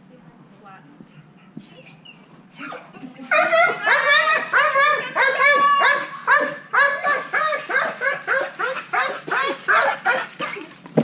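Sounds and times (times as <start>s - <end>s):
dog barking rapidly: 3.3s - 10.3s.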